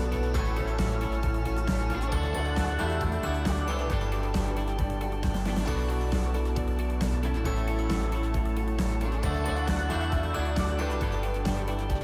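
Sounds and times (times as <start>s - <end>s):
bass line: 0.0s - 12.0s.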